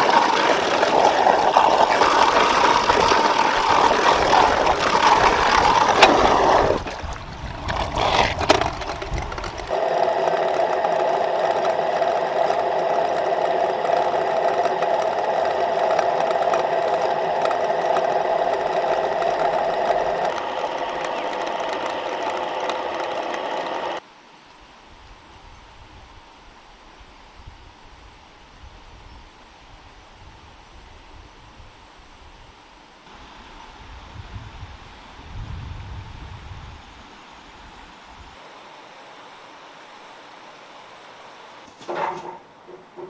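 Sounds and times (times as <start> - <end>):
generator whirring hum: 0.0 - 24.0
water gushing into concrete channel: 0.0 - 24.0.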